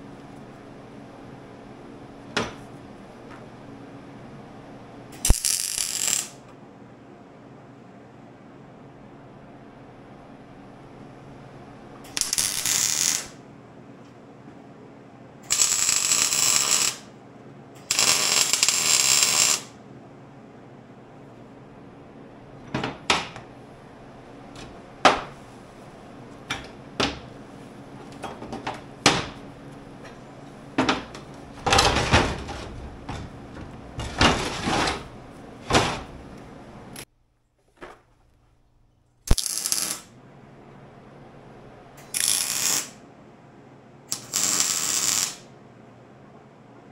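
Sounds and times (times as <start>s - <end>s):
welding crackling hiss: 5.2s - 6.4s, 12.1s - 13.4s, 15.5s - 17.1s, 17.8s - 19.8s, 39.3s - 40.1s, 42.0s - 43.0s, 44.1s - 45.5s.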